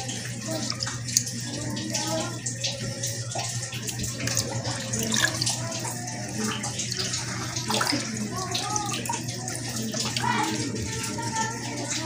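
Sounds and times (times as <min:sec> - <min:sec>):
faint voices: 0:00.0 - 0:12.0
water running: 0:00.0 - 0:12.0.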